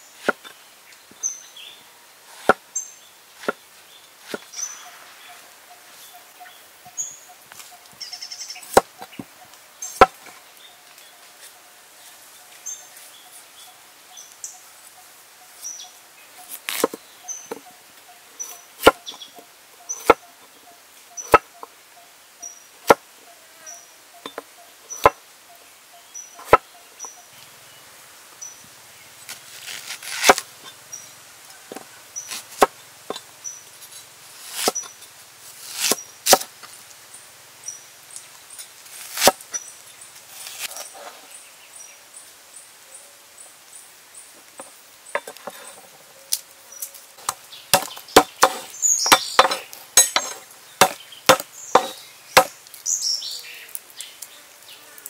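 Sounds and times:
cleaver knocking on wooden board: 47.2s - 52.5s.

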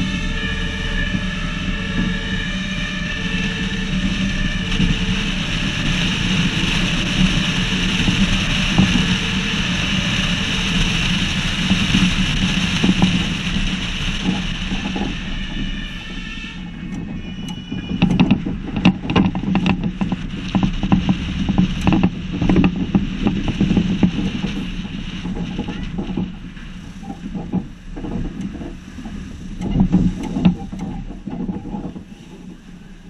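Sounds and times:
engine and wind rumble: 0.0s - 33.0s
sharp rattles and knocks: 0.0s - 33.0s.

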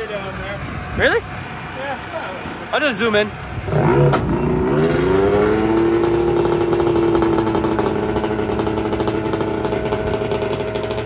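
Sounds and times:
snowmobile engine at high revs: 3.7s - 11.0s.

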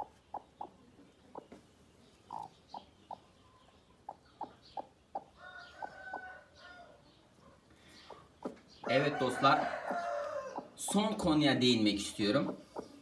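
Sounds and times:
hen clucking softly: 0.0s - 11.3s, 12.3s - 13.0s
drawn-out chicken call: 5.2s - 7.0s, 8.9s - 10.8s.

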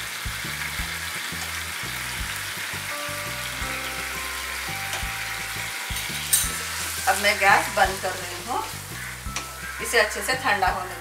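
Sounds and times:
food sizzling in oil: 0.0s - 11.0s
soft background music: 0.0s - 11.0s.

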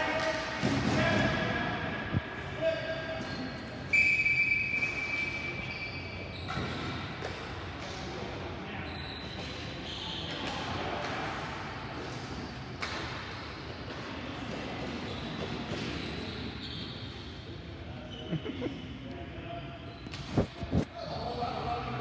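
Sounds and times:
indoor hall background noise: 0.0s - 22.0s
shoe squeaks: 2.9s - 7.1s, 8.8s - 10.4s, 14.9s - 17.4s, 19.6s - 21.6s.

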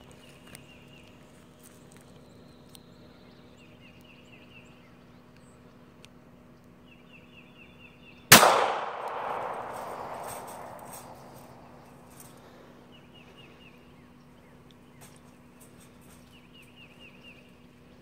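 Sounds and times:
pistol shot with ringing tail: 8.3s - 12.0s.

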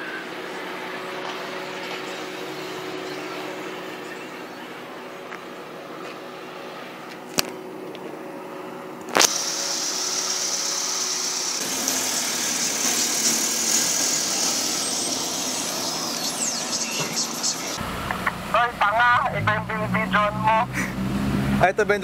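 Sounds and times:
steady hiss: 9.1s - 16.8s.

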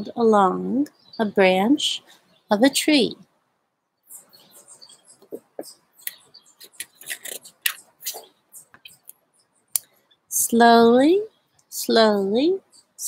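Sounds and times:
small birds chirping: 0.4s - 3.2s, 4.0s - 13.0s
book page turning: 6.6s - 8.8s.

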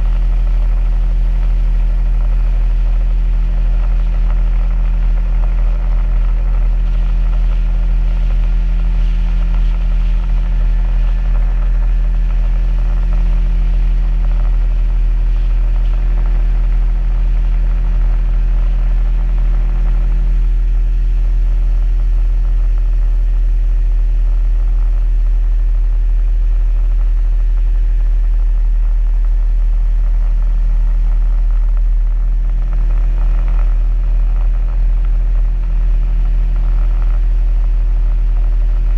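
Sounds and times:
outboard motor running: 0.0s - 38.9s.

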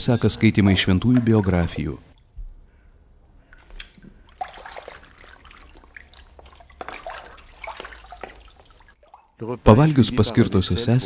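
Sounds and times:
water splashing and dripping: 0.7s - 9.6s.

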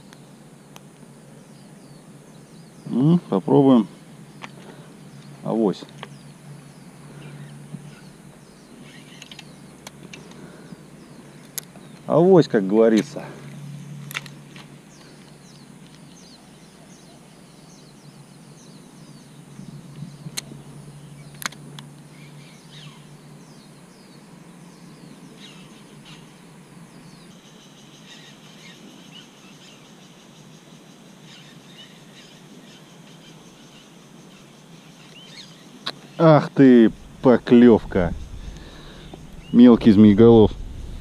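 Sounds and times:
low steady hum: 0.0s - 28.8s, 30.6s - 41.0s
bird chirps: 1.4s - 12.4s, 22.1s - 41.0s
faint high whine: 31.6s - 41.0s.

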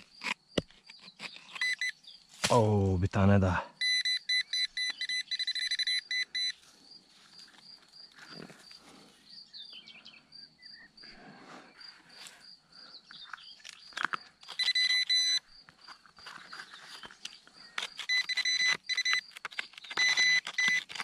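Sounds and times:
metal detector pinpointer beeping: 1.5s - 2.0s, 3.8s - 6.6s, 14.4s - 15.5s, 17.9s - 19.3s, 19.9s - 20.9s
faint high chirping: 3.8s - 6.7s, 8.0s - 11.1s
rustling of soil and gloved hands: 6.6s - 9.3s, 13.2s - 21.0s.

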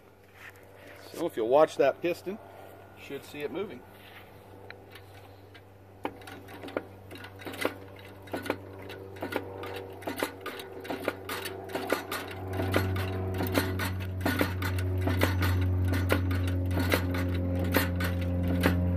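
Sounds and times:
hydraulic pump hum: 0.0s - 18.9s
sharp metallic ticks: 4.6s - 18.9s.

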